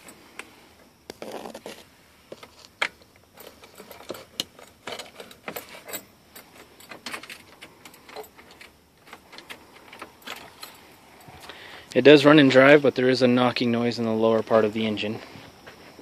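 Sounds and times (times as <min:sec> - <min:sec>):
light clicks and rustling: 0:02.3 - 0:11.6.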